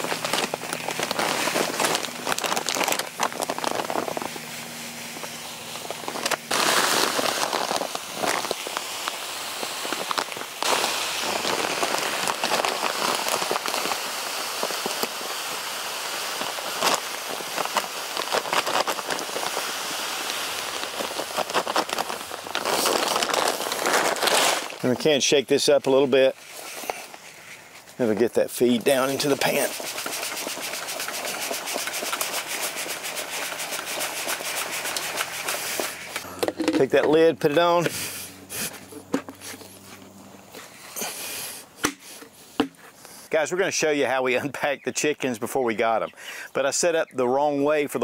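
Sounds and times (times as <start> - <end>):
pellets pouring into plastic bucket: 0.0 - 25.7, 28.5 - 36.9.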